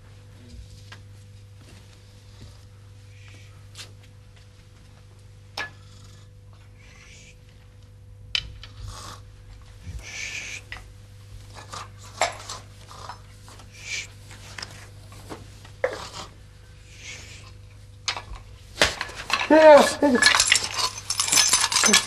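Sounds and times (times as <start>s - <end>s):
soft hissing: 9.9s - 10.8s
small objects clinking and knocking: 18.1s - 22.0s
person crying out: 19.4s - 20.4s.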